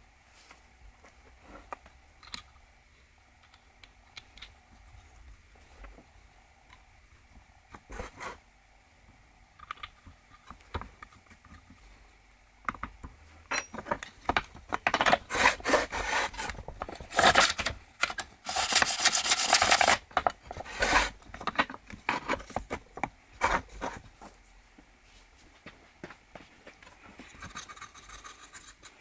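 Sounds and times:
metal parts rubbing and scraping: 15.1 - 17.7, 18.4 - 21.2, 27.3 - 29.0.

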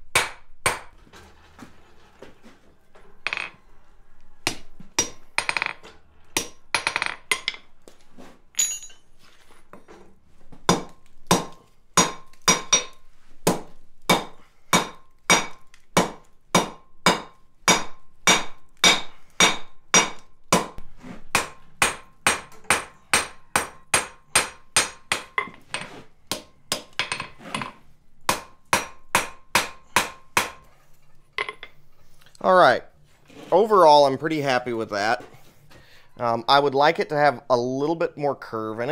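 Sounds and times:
hammer striking metal on anvil: 0.1 - 0.9, 4.4 - 5.8, 10.7 - 25.6, 28.3 - 30.6.

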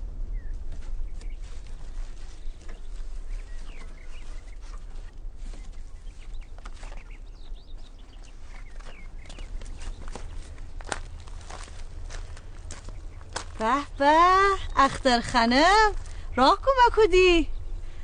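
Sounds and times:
steady low hum: 0.0 - 18.0
bird chirps: 0.3 - 10.8, 17.3 - 18.0.

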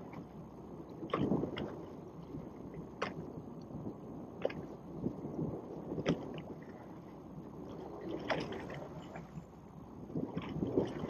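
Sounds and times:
water sloshing against boat hull: 0.0 - 11.0.

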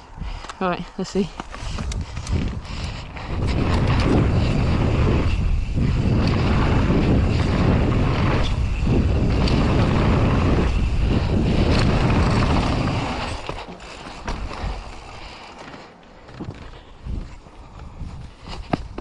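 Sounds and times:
wind rush on microphone: 0.0 - 19.0
bike rattle: 1.4 - 19.0.

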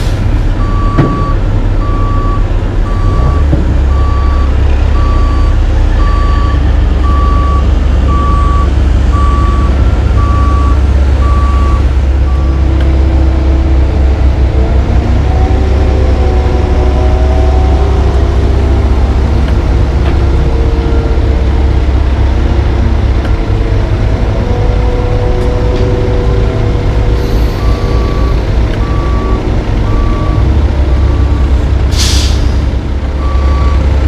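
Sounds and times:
diesel engines rumbling: 0.0 - 34.0
backup alarm beeping: 0.6 - 12.7.

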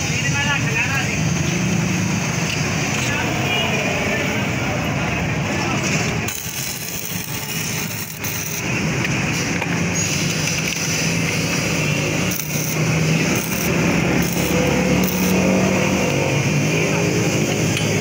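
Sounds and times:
arc welding crackling hiss: 6.3 - 18.0.

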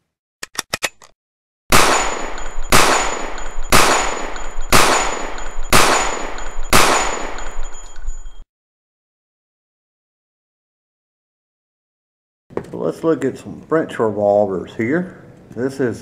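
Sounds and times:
gunshots with long tail: 1.7 - 7.7
faint high steady tone: 7.4 - 8.4.

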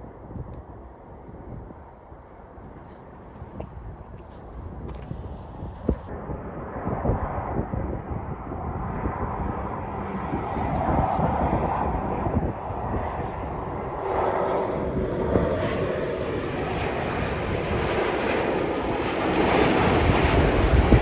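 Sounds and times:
jet airliner engines: 0.0 - 21.0.

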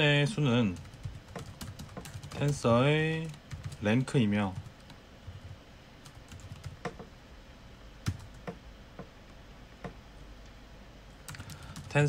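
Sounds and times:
keyboard keys clicking: 0.8 - 2.6, 11.3 - 12.0.

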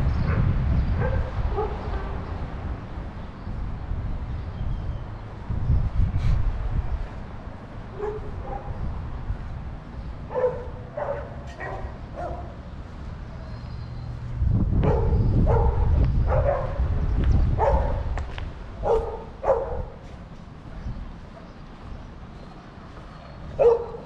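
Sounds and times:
dog barking: 1.0 - 2.3, 7.9 - 8.8, 10.3 - 12.6, 14.8 - 16.9, 17.5 - 18.1, 18.8 - 20.1, 23.5 - 24.0.

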